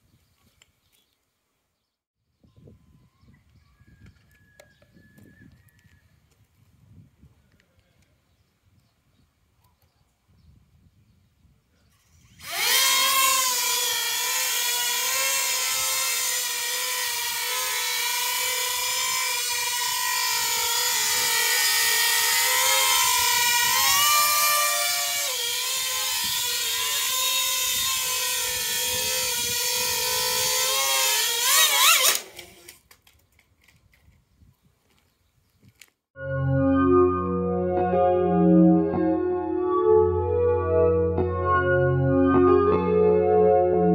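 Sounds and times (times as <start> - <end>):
drone propeller motors whining: 12.0 - 32.6.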